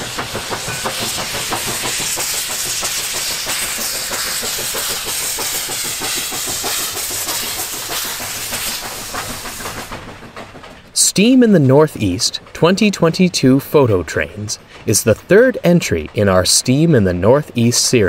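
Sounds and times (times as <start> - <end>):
steam venting hiss: 0.0 - 11.3
steam locomotive exhaust chuffs: 0.0 - 17.8.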